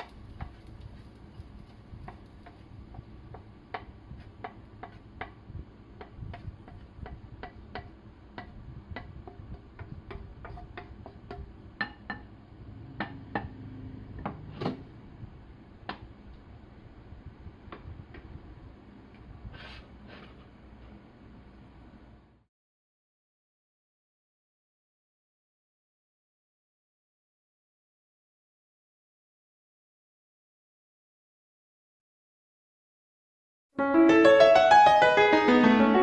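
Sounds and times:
wooden spatula scraping a pan: 0:00.0 - 0:05.4, 0:06.0 - 0:12.2, 0:19.4 - 0:20.9.

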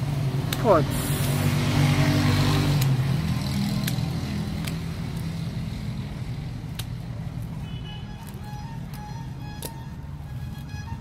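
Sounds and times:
vehicle engine humming: 0:00.0 - 0:11.0
pruning shears clicking: 0:02.6 - 0:05.4, 0:06.6 - 0:07.5, 0:08.2 - 0:10.8.

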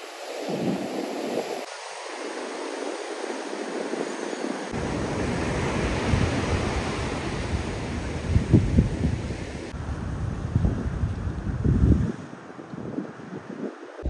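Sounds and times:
ocean surf on rocky beach: 0:00.0 - 0:10.7.

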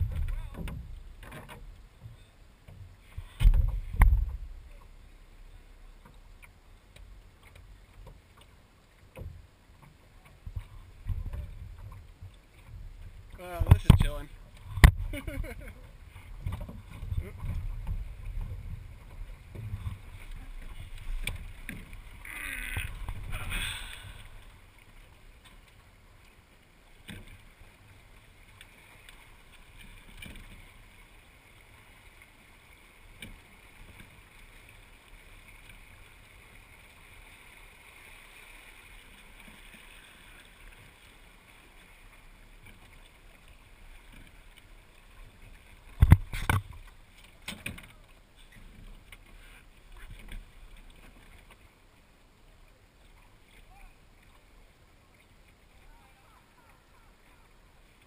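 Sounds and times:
wind rumbling on microphone: 0:00.0 - 0:02.2, 0:02.8 - 0:04.8, 0:10.4 - 0:24.7
water swishing along a hull: 0:00.0 - 0:58.0
hissing rushes of water: 0:22.2 - 0:24.5.

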